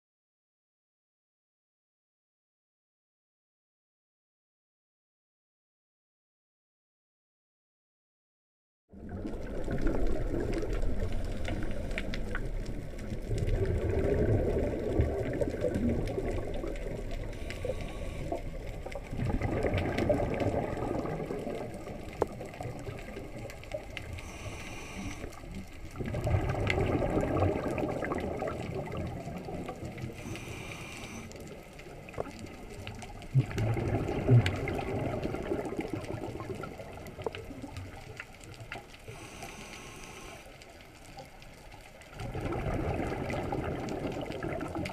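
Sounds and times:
bubbling exhalations underwater: 0:08.9 - 0:25.0, 0:25.9 - 0:30.6, 0:32.0 - 0:38.1, 0:42.2 - 0:44.9
regulator inhalation hiss: 0:17.4 - 0:18.4, 0:24.2 - 0:25.4, 0:30.2 - 0:31.4, 0:39.1 - 0:40.5.

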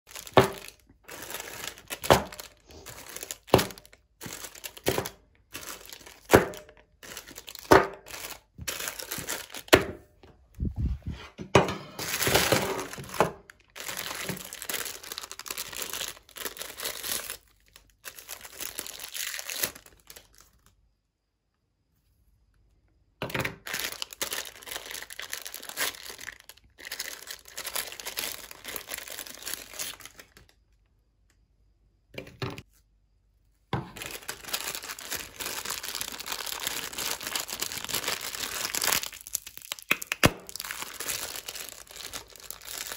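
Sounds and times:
plastic wrappers crinkling: 0:00.0 - 0:10.6, 0:12.0 - 0:20.8, 0:23.3 - 0:30.6, 0:33.8 - 0:42.9
wrapper tearing open: 0:00.1 - 0:09.8, 0:12.0 - 0:20.6, 0:23.5 - 0:30.6, 0:34.0 - 0:42.9.

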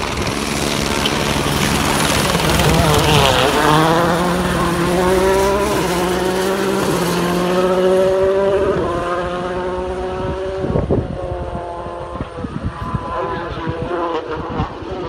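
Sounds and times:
helicopter rotor and turbine: 0:00.0 - 0:09.0, 0:12.1 - 0:15.0
rally car engine passing: 0:00.0 - 0:15.0.

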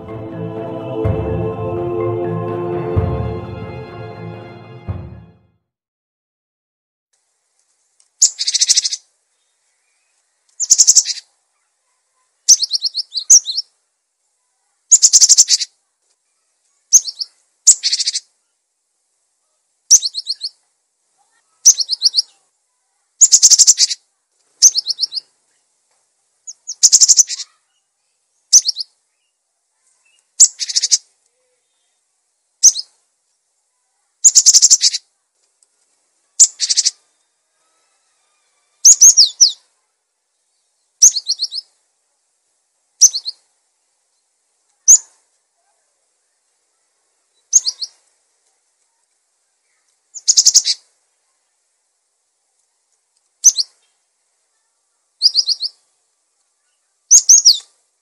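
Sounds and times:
tit singing high notes: 0:00.0 - 0:05.5.

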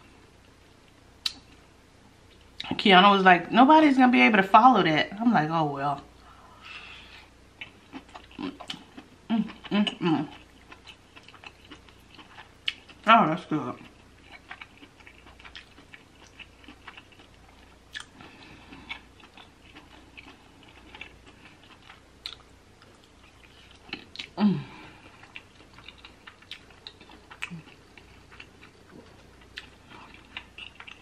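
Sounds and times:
person chewing wetly: 0:07.6 - 0:13.0, 0:13.8 - 0:31.0
person humming mm: 0:24.4 - 0:25.0.

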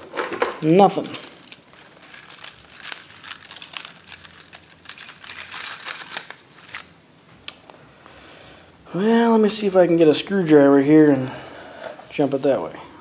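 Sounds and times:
small metal objects clinking: 0:00.8 - 0:06.9.

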